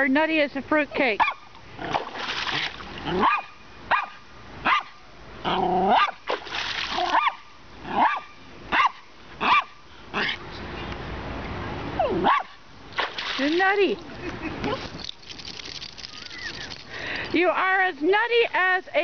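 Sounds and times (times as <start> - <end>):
dog barking in high yips: 1.2 - 1.5, 3.2 - 5.0, 5.9 - 6.2, 7.0 - 10.4, 12.1 - 12.6
shallow creek water rushing: 1.3 - 4.6.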